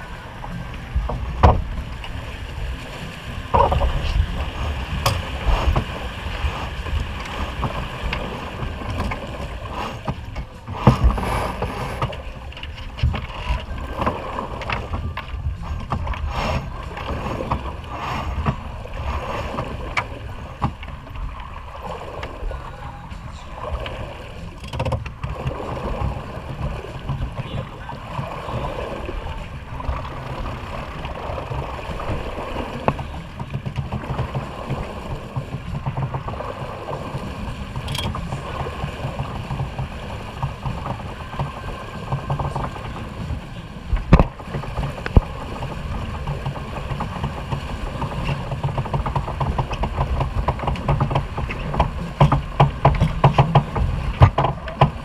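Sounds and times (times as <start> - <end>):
water rushing along hull: 0.0 - 55.0
wind buffeting microphone: 0.0 - 55.0
winches and lines clicking: 37.7 - 38.3.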